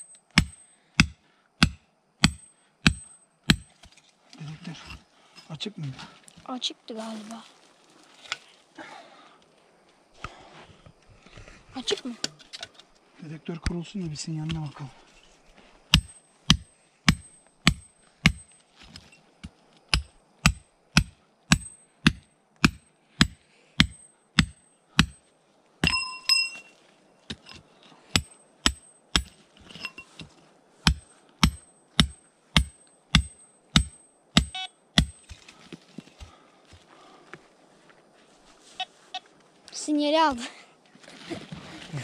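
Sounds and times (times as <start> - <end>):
metal detector beep: 25.8 - 26.7, 34.4 - 34.8, 38.7 - 39.3
metal detector ticking: 34.4 - 35.3.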